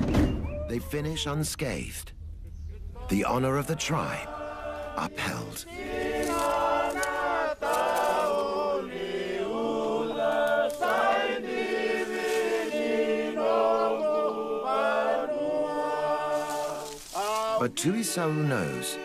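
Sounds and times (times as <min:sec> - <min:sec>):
group of voices chanting: 0:03.7 - 0:17.7.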